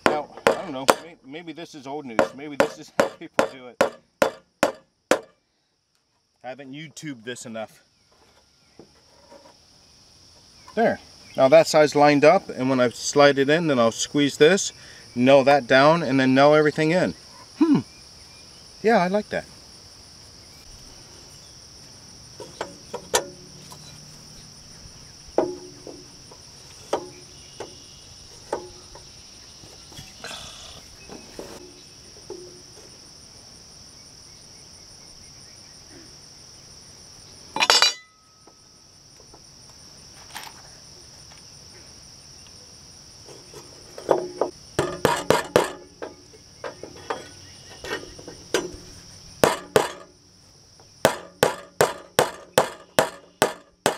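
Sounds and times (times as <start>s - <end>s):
crickets chirping: 0.0s - 53.9s
hammer driving nails through metal: 2.2s - 5.3s, 44.8s - 46.2s, 49.4s - 50.1s, 51.1s - 53.9s.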